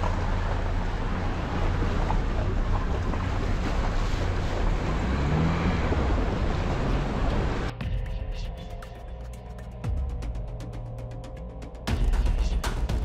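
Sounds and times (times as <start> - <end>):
water rushing and splashing: 0.0 - 7.7
engine rumble: 0.0 - 13.0.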